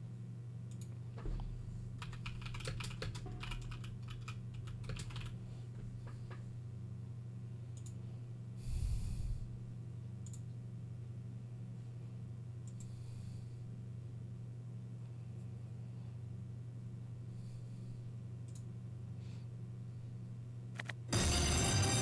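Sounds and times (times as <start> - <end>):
steady low hum: 0.0 - 21.9
computer keyboard typing: 2.0 - 5.4.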